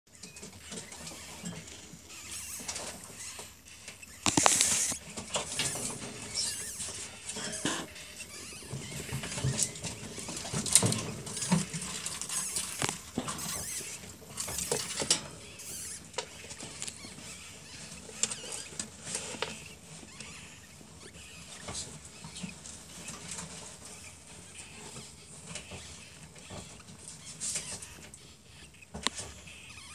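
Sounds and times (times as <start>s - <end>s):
baby ferrets squeaking: 0.1s - 29.9s
straw rustling and crackling: 1.6s - 15.0s.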